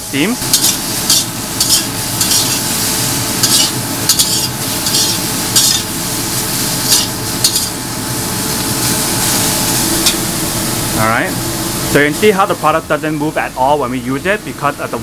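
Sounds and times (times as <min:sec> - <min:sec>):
onions sizzling in a pan: 0:00.1 - 0:12.3
metal turner scraping a wok: 0:00.5 - 0:06.0, 0:06.8 - 0:07.8.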